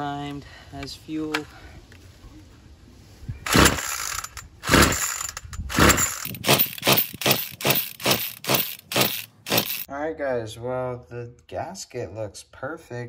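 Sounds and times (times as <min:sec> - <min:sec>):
engine cranking without firing: 0:03.5 - 0:09.9.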